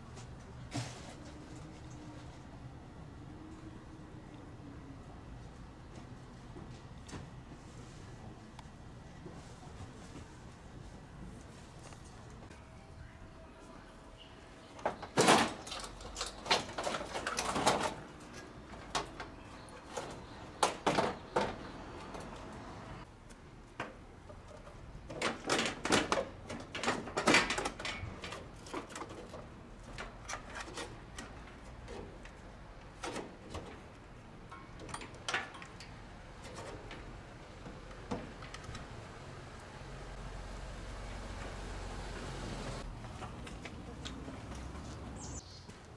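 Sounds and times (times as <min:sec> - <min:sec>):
sheet metal clanks and rattles: 0:24.4 - 0:38.8.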